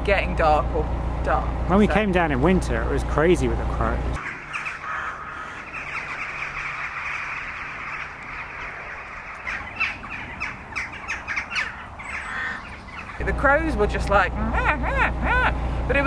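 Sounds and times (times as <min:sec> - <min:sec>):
crows cawing: 0:04.2 - 0:13.2.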